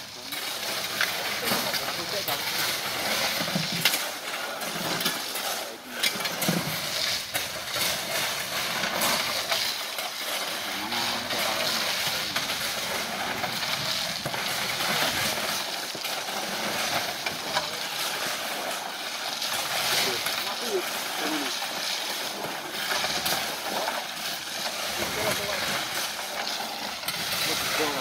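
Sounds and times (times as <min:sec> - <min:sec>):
gravel clattering onto a pile: 0:00.0 - 0:28.0
shovels scraping through gravel: 0:00.0 - 0:28.0.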